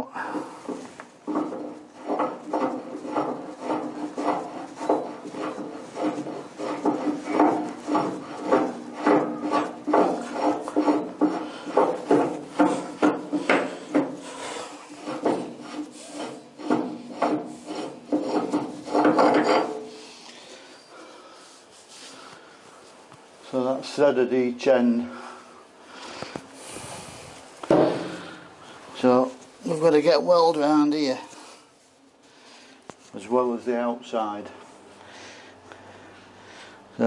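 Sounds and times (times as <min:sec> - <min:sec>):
metal on metal rasping scrape: 0:00.7 - 0:20.9.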